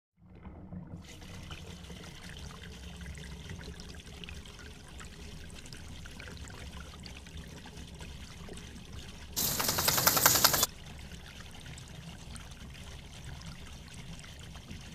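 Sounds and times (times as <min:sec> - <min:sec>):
hose water spraying and splashing: 0:09.4 - 0:10.7.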